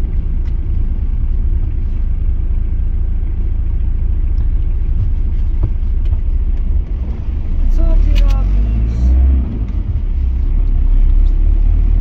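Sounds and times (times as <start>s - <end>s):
car engine and tyres rumble: 0.0s - 12.0s.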